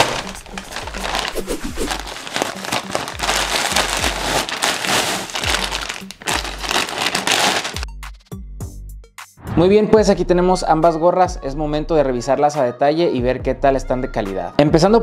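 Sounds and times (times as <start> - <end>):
plastic being torn open: 0.0 - 7.9
plastic packaging crinkling: 0.0 - 7.9
background music with steady beat: 0.0 - 15.0.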